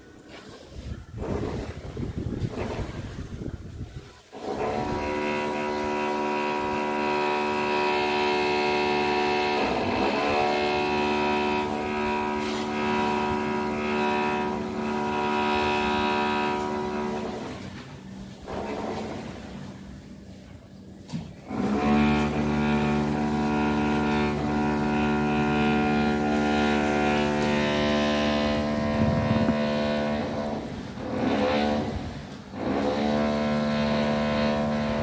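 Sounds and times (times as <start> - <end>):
wind on microphone: 0.5 - 5.8, 26.9 - 32.3.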